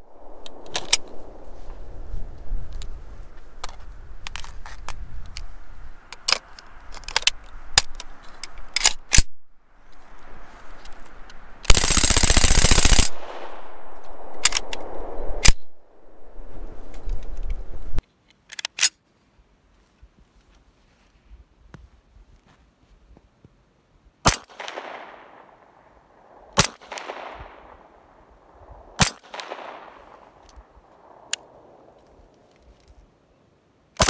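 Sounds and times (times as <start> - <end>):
submachine gun burst with echo: 11.7 - 16.4, 24.3 - 28.2, 29.0 - 30.4.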